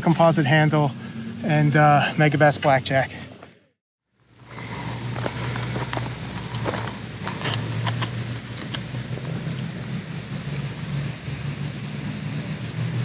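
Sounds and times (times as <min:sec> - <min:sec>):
steady low hum: 0:04.1 - 0:13.0
metallic clicks and rattles: 0:05.3 - 0:09.7.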